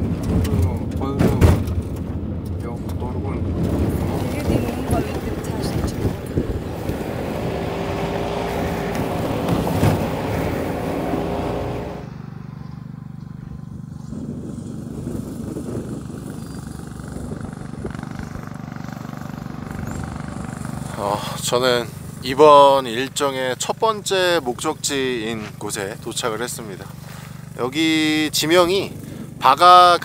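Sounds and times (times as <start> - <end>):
rattling inside vehicle cabin: 0.0 - 12.0
vehicle engine on rough road: 0.0 - 30.0
steady low hum: 2.2 - 22.3.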